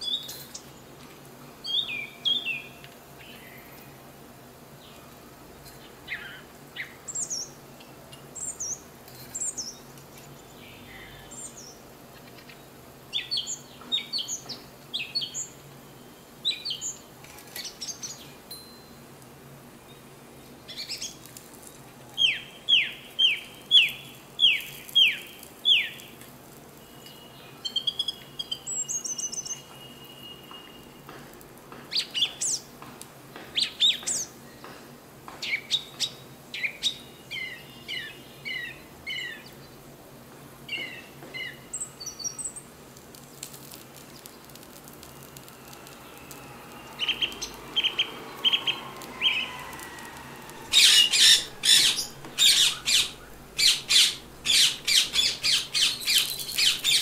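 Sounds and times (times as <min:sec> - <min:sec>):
songbirds chirping: 0:04.7 - 0:18.4, 0:26.8 - 0:57.0.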